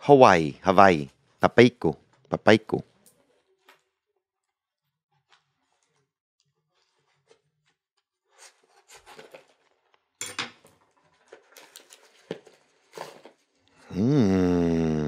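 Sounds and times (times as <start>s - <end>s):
cardboard and tape tearing: 8.3s - 9.9s, 11.2s - 13.5s.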